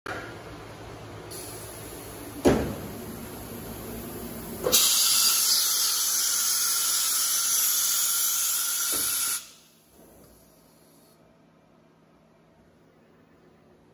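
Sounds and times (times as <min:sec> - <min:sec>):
compressed air hissing: 0:01.3 - 0:02.3, 0:02.9 - 0:11.2.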